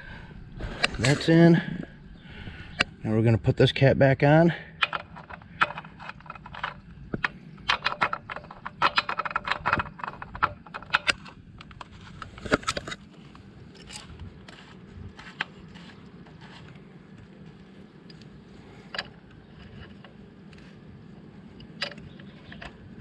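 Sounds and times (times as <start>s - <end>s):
cap clicking and scraping: 4.7s - 13.1s.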